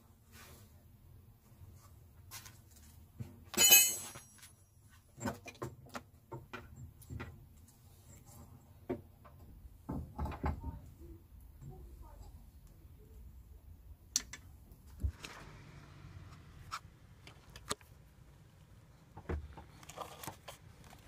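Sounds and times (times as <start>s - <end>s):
metal clinks and knocks from tools: 3.5s - 5.6s
loud ringing metallic clatter: 3.6s - 4.3s.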